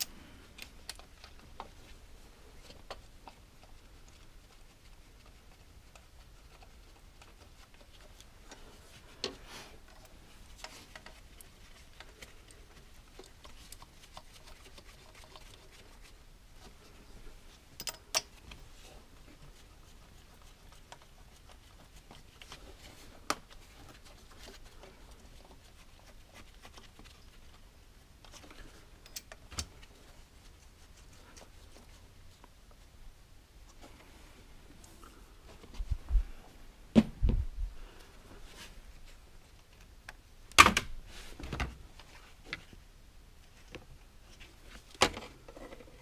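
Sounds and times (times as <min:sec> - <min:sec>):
hand tools clicking and knocking: 0:17.8 - 0:18.4.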